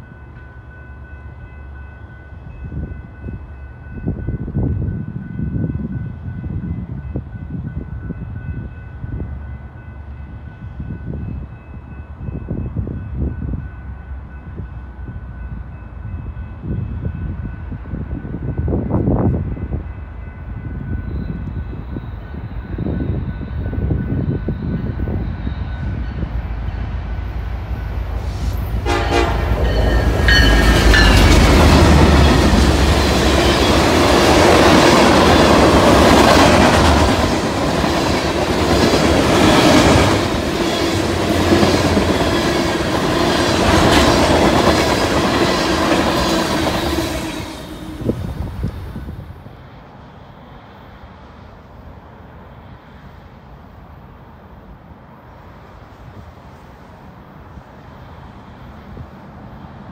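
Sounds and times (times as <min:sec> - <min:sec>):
faint horn-like tone: 0:28.2 - 0:30.8.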